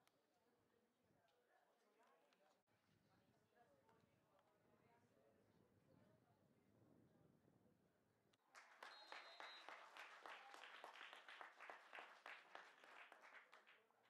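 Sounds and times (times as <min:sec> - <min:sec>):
people clapping: 0:08.4 - 0:14.0.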